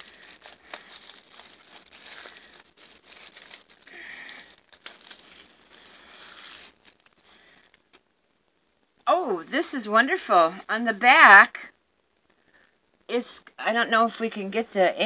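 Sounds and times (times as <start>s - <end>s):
plastic wrapping crinkling: 0.0s - 8.2s.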